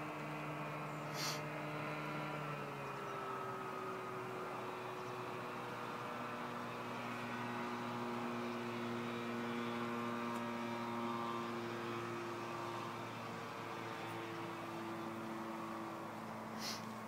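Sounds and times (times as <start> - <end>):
microlight engine droning overhead: 0.0 - 17.0.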